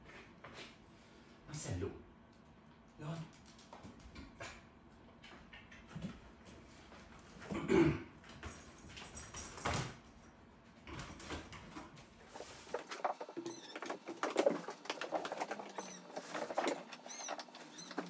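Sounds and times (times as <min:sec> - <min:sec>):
cat litter clicks and scrapes: 0:10.9 - 0:18.0
plastic bag rustling: 0:12.2 - 0:18.0.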